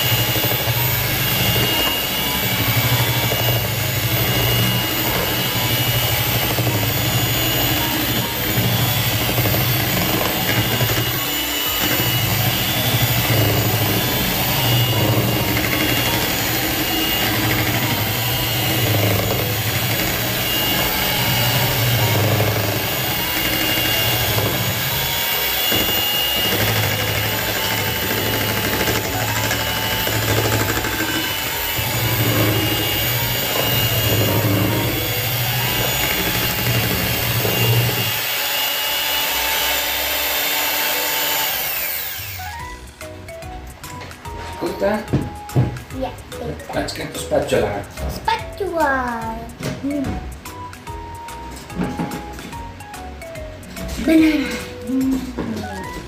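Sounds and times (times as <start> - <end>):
electric hand mixer whirring: 0.0 - 46.0.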